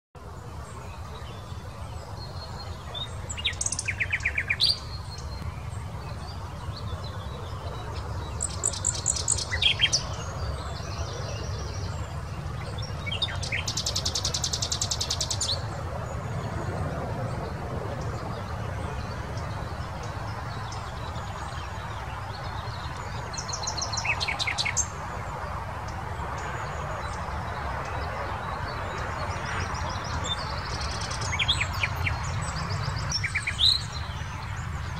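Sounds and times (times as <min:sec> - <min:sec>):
nightingale singing: 0:02.5 - 0:05.5.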